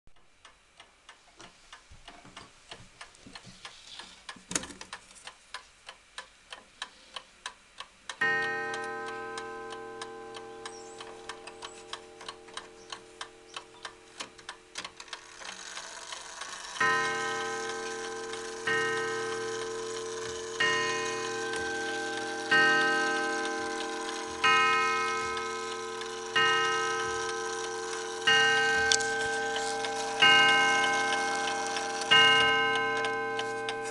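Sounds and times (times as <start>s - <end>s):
mantel clock ticking: 0.2s - 33.9s
clock chime strike ringing: 8.2s - 13.6s, 16.8s - 33.9s.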